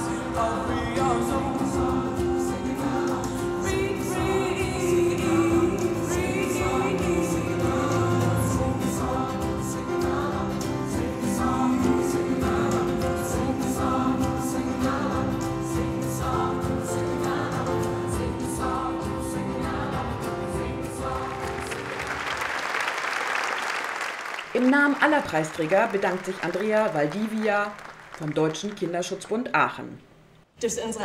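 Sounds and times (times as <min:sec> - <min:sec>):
choir singing gospel song: 0:00.0 - 0:22.6.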